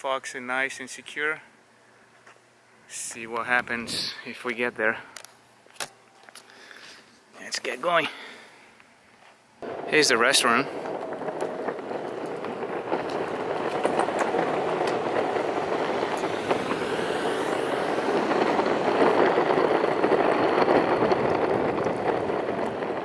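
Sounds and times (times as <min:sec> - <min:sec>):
skateboard wheels rolling on asphalt: 0:09.2 - 0:23.0.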